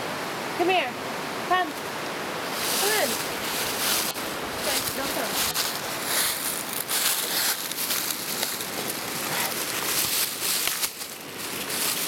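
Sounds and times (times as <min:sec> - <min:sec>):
footsteps in leaf litter: 0:02.5 - 0:12.0
dry leaves rustling and crunching: 0:02.6 - 0:12.0.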